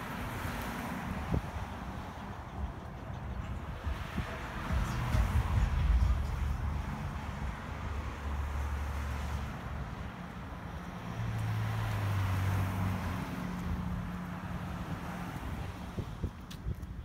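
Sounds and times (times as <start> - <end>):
wind buffeting microphone: 0.0 - 8.0, 14.9 - 17.0.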